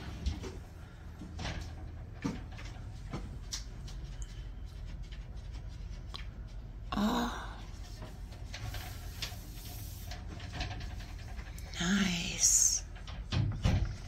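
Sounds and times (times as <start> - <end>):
steady low hum: 0.0 - 14.0
breathy voice sound: 6.9 - 7.8.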